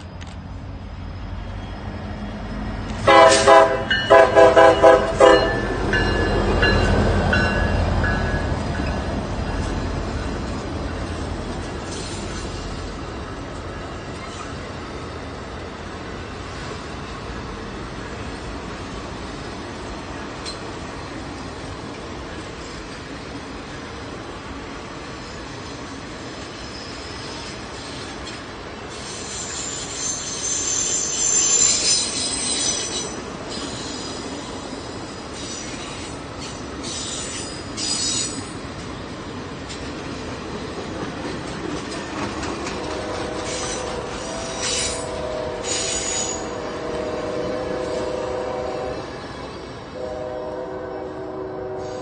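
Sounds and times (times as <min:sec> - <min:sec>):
train cars rolling past: 0:00.0 - 0:52.0
distant train horn: 0:03.0 - 0:07.1, 0:42.6 - 0:52.0
high-pitched wheel squeal: 0:26.6 - 0:27.9, 0:28.9 - 0:34.6, 0:35.4 - 0:38.6, 0:43.4 - 0:48.2.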